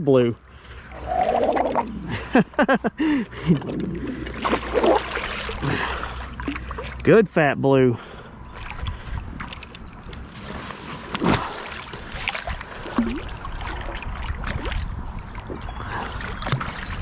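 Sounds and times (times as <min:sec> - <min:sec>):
fish thrashing and water splashing: 0:00.8 - 0:02.3, 0:03.0 - 0:07.0, 0:08.4 - 0:17.0
wind rumble on microphone: 0:08.7 - 0:17.0.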